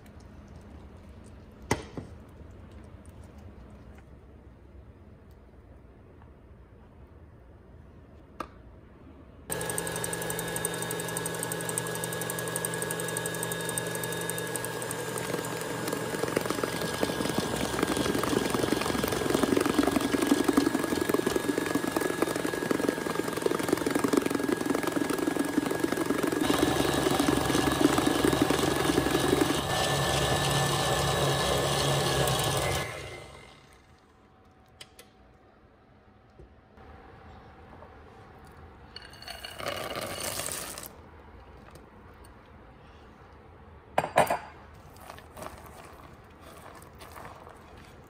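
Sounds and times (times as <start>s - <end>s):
stand mixer whisking: 9.5s - 33.8s.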